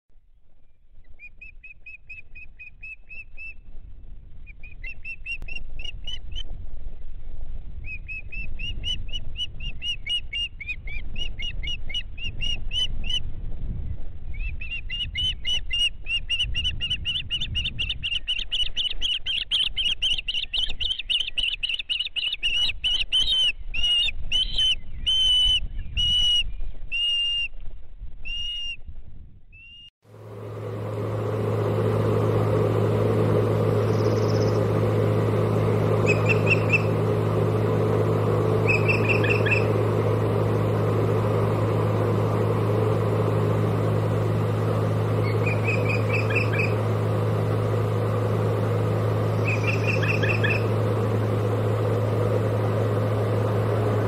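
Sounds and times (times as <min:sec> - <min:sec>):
osprey whistled chirps: 0:07.9 - 0:13.2, 0:33.8 - 0:34.7, 0:35.9 - 0:37.0, 0:38.6 - 0:39.8, 0:45.2 - 0:46.8, 0:49.3 - 0:50.7
low rumble: 0:28.9 - 0:54.0.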